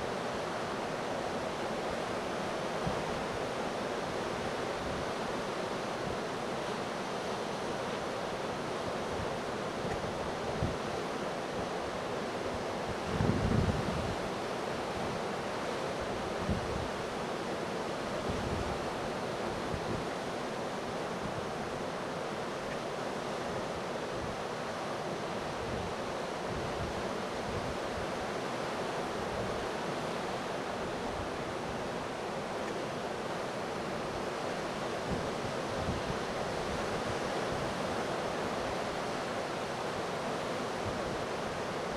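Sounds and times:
wind blowing over microphone: 12.8s - 14.3s, 16.2s - 17.0s, 35.0s - 38.9s.

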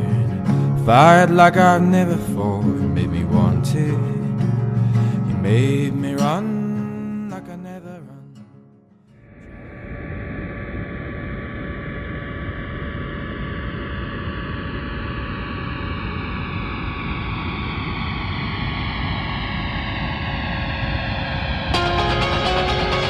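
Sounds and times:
jet airliner engine roar: 0.0s - 6.7s, 9.2s - 23.0s
high whining tones: 9.2s - 19.6s.

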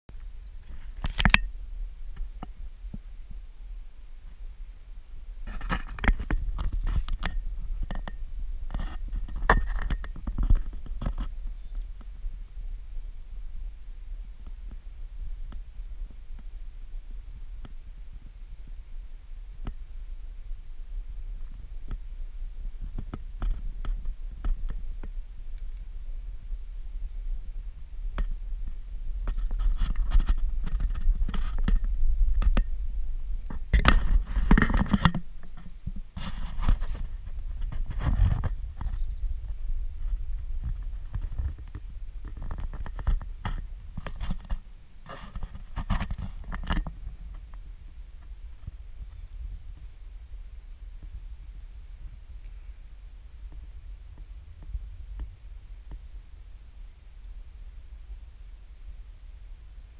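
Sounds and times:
wind rumble on microphone: 0.1s - 59.9s
handling knocks and scrapes: 28.2s - 32.7s, 33.4s - 47.6s.

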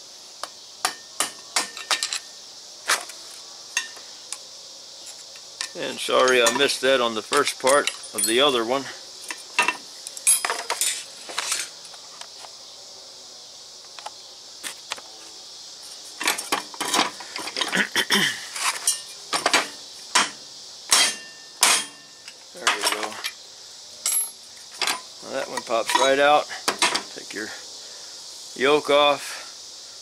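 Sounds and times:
metal-on-metal knocks and clinks: 0.8s - 2.2s, 5.6s - 8.5s, 9.6s - 11.0s, 18.8s - 23.4s, 24.0s - 27.1s.

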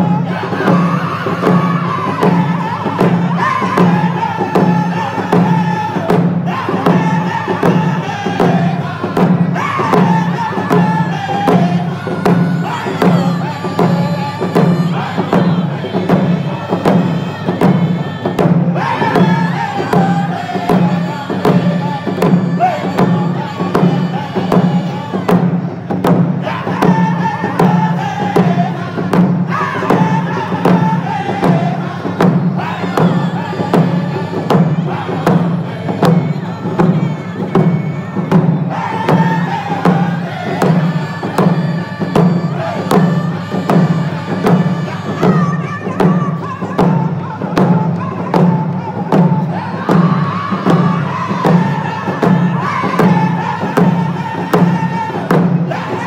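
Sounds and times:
group of men singing: 0.0s - 56.0s
hand drums beating: 0.0s - 56.0s.

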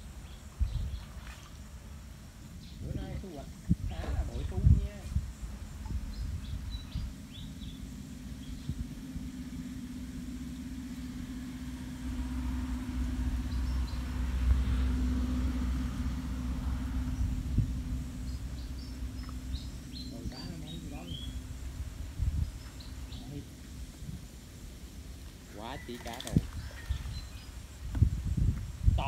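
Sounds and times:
small birds chirping: 0.0s - 1.8s, 2.4s - 11.7s, 13.4s - 15.2s, 16.7s - 29.0s
motor engine humming: 0.0s - 29.0s.

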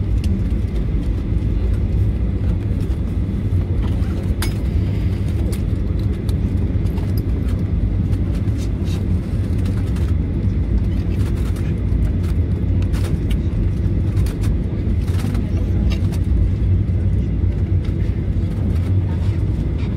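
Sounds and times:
airliner cabin rumble: 0.0s - 19.9s.

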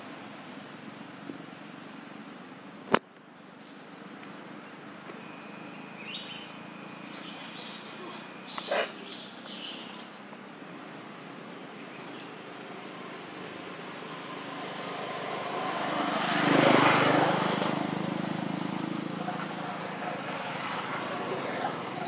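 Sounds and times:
passing engine hum: 12.4s - 22.0s.

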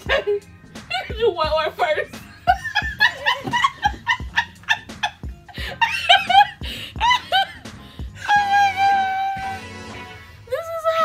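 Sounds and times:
women laughing: 0.0s - 1.2s, 2.4s - 9.0s
background music with beat: 0.0s - 11.0s.

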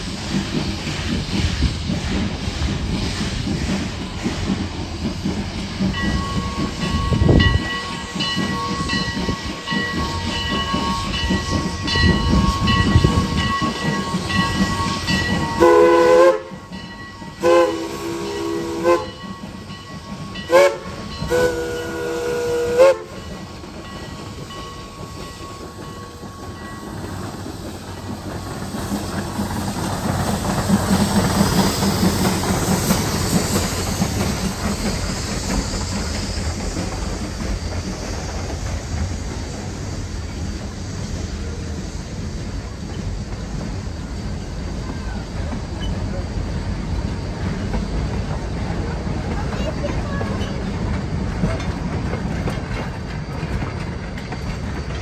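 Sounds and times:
steam locomotive running: 0.0s - 55.0s
steam whistle blasts: 10.8s - 16.7s, 17.3s - 19.3s, 20.2s - 23.3s.

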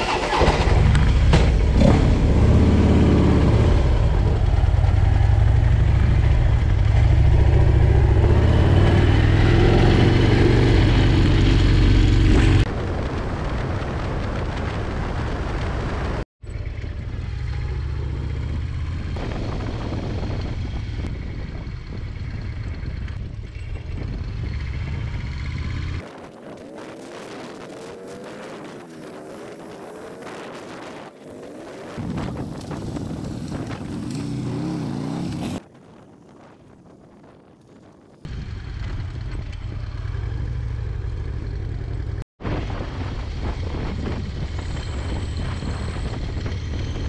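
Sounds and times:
motorcycle engine revving: 0.0s - 12.7s, 16.5s - 35.6s
motorcycle engine while riding: 0.0s - 35.7s, 37.9s - 47.0s
wind on microphone: 18.5s - 38.6s, 42.4s - 47.0s.

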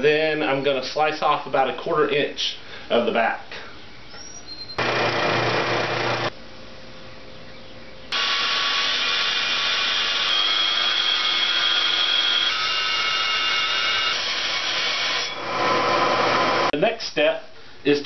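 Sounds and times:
bandsaw cutting wood: 4.8s - 6.3s, 8.1s - 16.7s
spindle sander humming: 4.8s - 6.3s, 8.1s - 16.7s.

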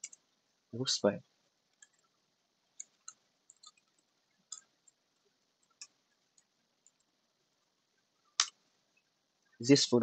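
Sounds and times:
computer keyboard typing: 0.0s - 0.2s, 1.7s - 2.2s, 2.8s - 5.0s, 5.6s - 7.1s.

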